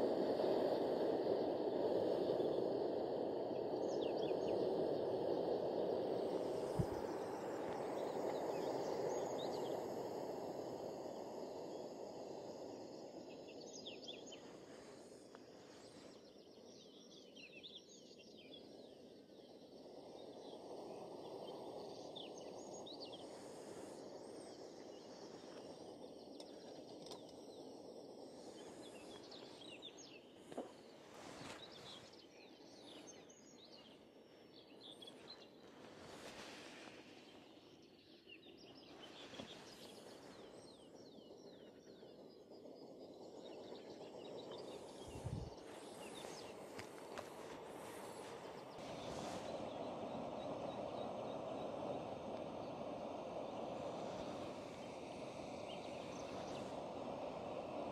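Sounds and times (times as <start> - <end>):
songbird chirps: 0.4 - 57.9
low rushing background: 18.2 - 57.9.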